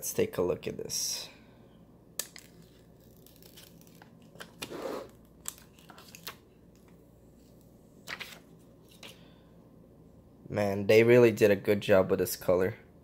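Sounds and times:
plastic film peeling and crinkling: 2.2 - 6.9.

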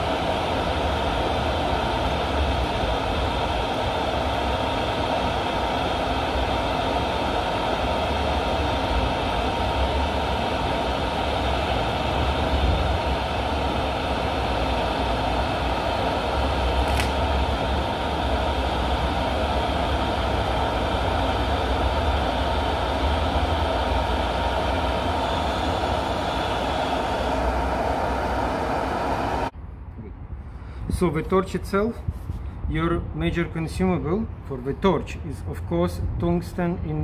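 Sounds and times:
welding arc hum and hiss: 0.0 - 29.5.

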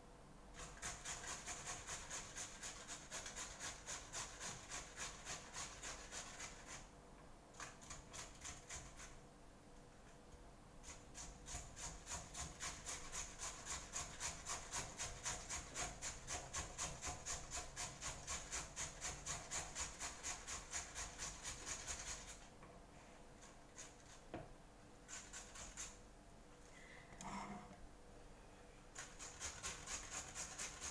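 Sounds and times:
potato masher scraping in bowl: 0.6 - 6.9, 10.8 - 22.4, 29.0 - 30.9.

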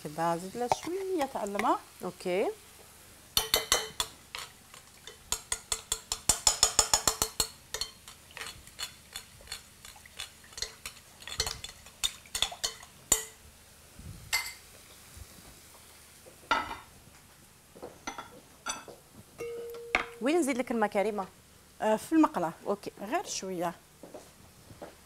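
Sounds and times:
utensil clinking against bowl: 5.1 - 13.3, 18.1 - 20.2.

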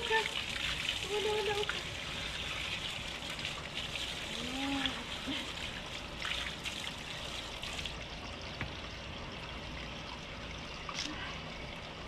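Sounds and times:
water from hose splashing: 0.0 - 8.8.

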